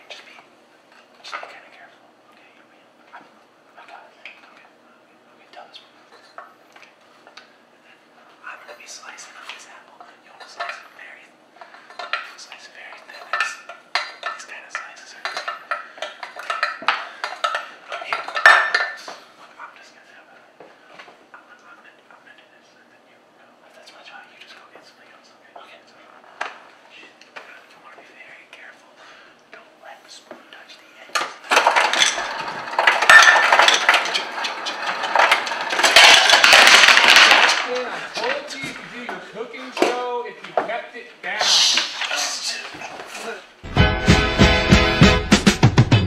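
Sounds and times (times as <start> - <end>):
ice cubes clattering from dispenser: 31.5 - 37.9.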